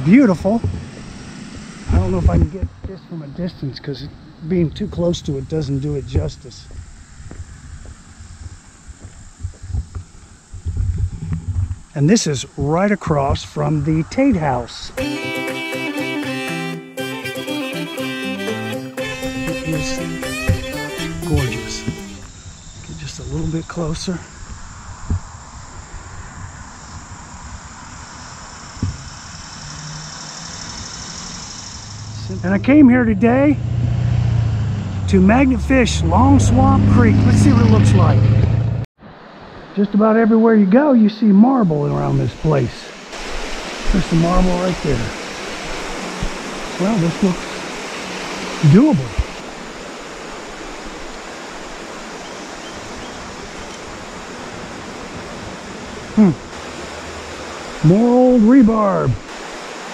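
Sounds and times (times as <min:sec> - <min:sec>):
high-pitched insect chorus: 0:03.1 - 0:15.0, 0:19.7 - 0:33.4
short bump: 0:20.4 - 0:20.8
creek water running over rocks: 0:39.4 - 0:59.9.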